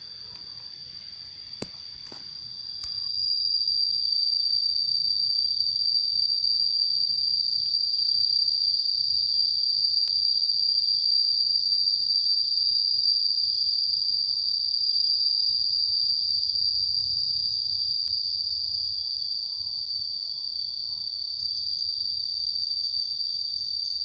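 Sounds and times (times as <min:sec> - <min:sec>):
faint clicks: 0:00.0 - 0:03.2.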